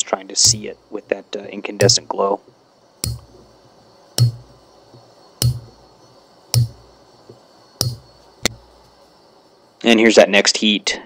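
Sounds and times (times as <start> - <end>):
hammer striking chisel on steel: 1.8 - 2.1, 4.2 - 4.6, 5.4 - 5.8, 6.6 - 6.8, 7.8 - 8.6.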